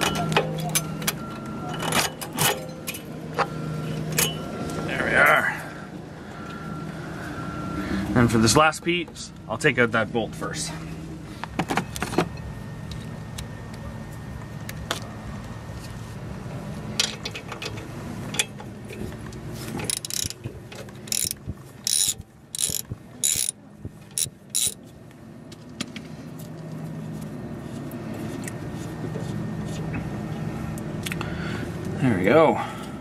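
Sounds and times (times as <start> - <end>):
ratchet wrench clicking: 19.8 - 20.4, 21.1 - 24.8
tool clicks and clinks: 19.8 - 24.8.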